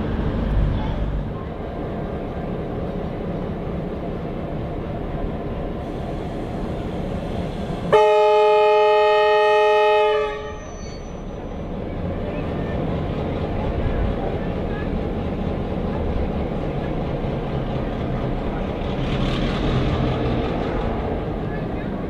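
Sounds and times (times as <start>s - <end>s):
locomotive rumble: 0.0s - 22.0s
train horn blast: 7.9s - 10.7s.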